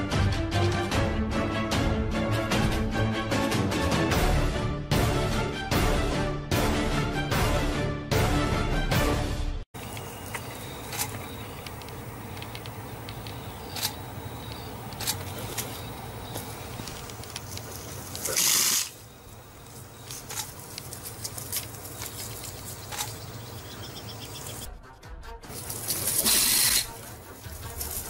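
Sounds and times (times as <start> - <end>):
light clicks and rustles: 9.8 - 18.3, 19.6 - 23.4
steady low hum: 9.8 - 18.3.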